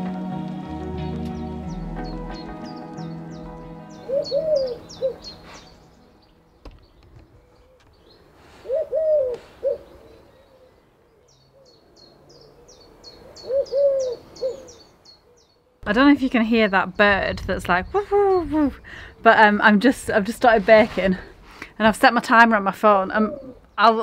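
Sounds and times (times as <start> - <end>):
songbird high chirps: 1.0 - 8.3, 9.7 - 17.1
bird low hooting call: 1.3 - 6.3, 7.2 - 15.8.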